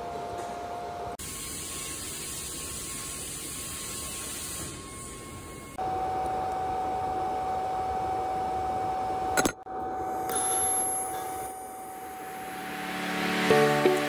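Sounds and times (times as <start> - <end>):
welding arc hissing: 1.2 - 4.8.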